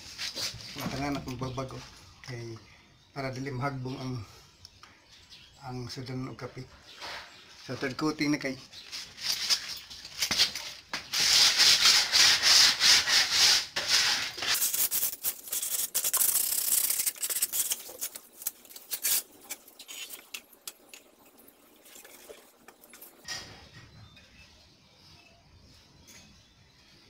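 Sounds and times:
sandpaper on wood: 11.1s - 17.8s.

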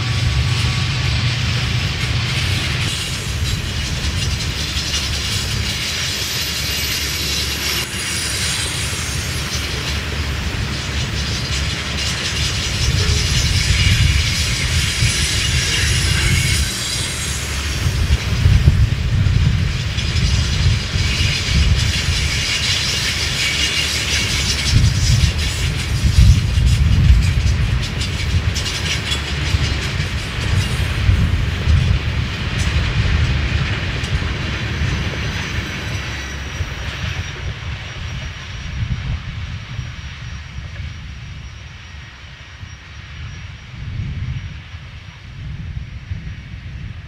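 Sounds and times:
high wheel squeal: 0.0s - 19.0s, 19.6s - 43.6s
train wheels clicking over rail joints: 0.0s - 41.0s
wind rumbling on microphone: 0.0s - 47.0s.

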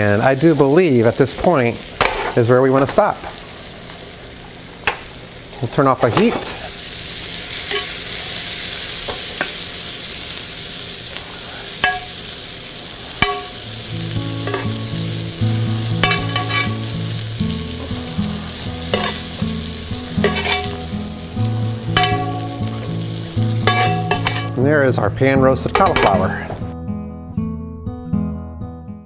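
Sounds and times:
butter sizzling in a frying pan: 0.0s - 24.7s.

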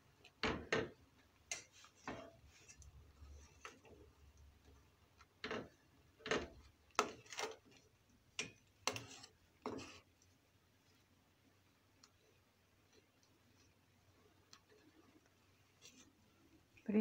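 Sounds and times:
metal spoon scraping metal pot: 8.4s - 10.0s.

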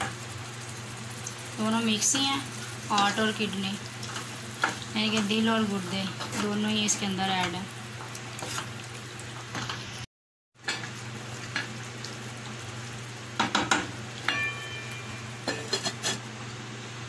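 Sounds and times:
meat sizzling in a pan: 0.0s - 15.8s
metallic ring from pan: 14.2s - 15.8s.

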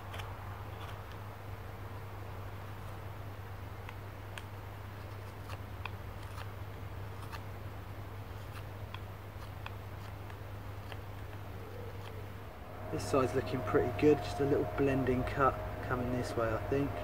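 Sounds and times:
steady low hum: 6.0s - 17.0s.

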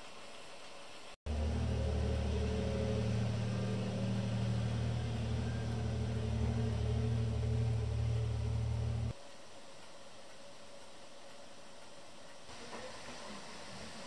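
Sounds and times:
low mechanical hum: 1.3s - 12.5s.

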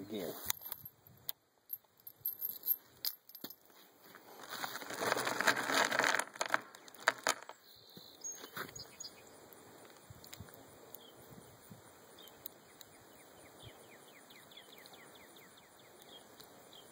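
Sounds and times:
cartridges clicking and rattling: 1.7s - 3.6s
rustling: 1.7s - 7.6s.

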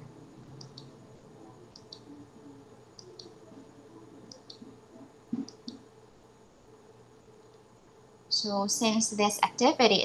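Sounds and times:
computer mouse clicks: 0.6s - 1.0s, 1.7s - 2.1s, 3.0s - 3.4s, 4.3s - 5.9s.

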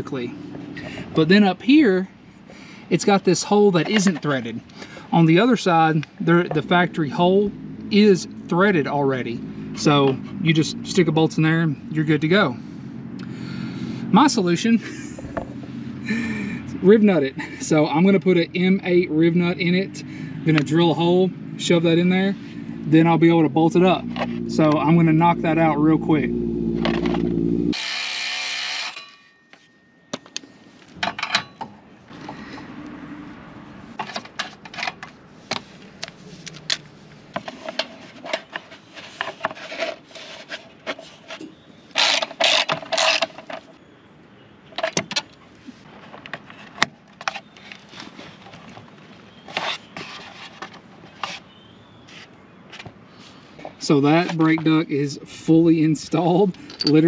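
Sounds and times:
power drill drilling: 27.7s - 29.0s, 42.0s - 43.2s
metal and plastic parts clicking: 56.5s - 57.0s.

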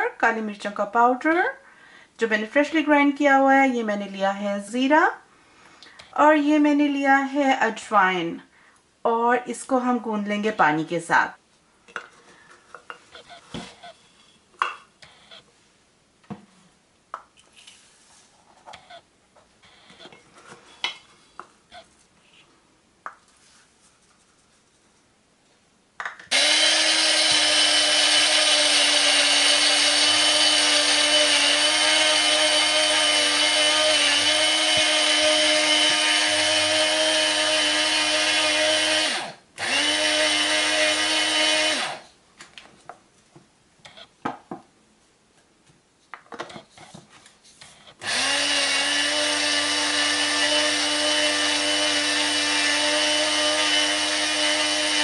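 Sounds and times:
electric grinder motor: 26.3s - 42.0s, 48.0s - 55.0s.

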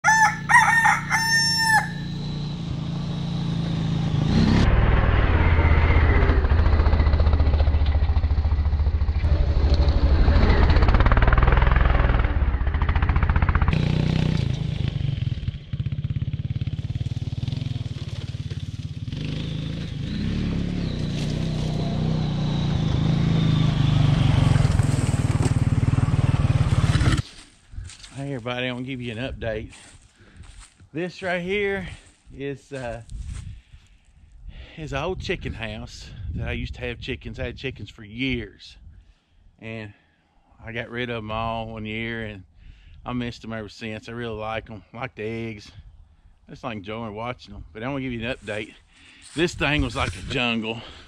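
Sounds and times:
rooster crowing: 0.0s - 2.3s
quad bike engine running: 1.8s - 27.4s.

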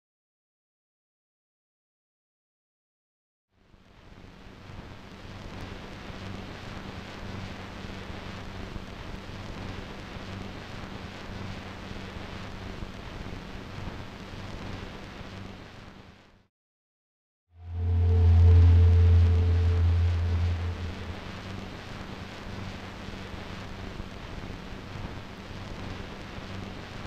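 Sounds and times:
steady rushing noise: 17.6s - 22.2s
low hum: 17.6s - 24.1s.

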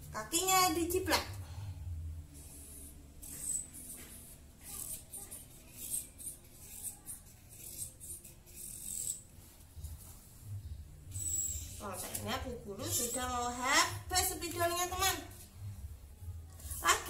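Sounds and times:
marker scratching on paper: 2.3s - 12.2s, 16.5s - 17.0s.

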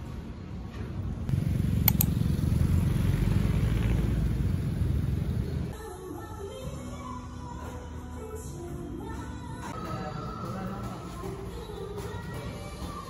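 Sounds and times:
street traffic: 0.0s - 5.8s
motorcycle engine rumble: 1.3s - 5.7s.

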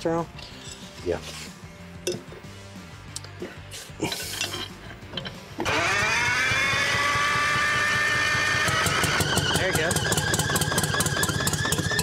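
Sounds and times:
tools clinking on metal: 0.3s - 1.0s, 2.0s - 2.3s, 4.0s - 5.4s
diesel engine starting and running: 5.0s - 12.0s.

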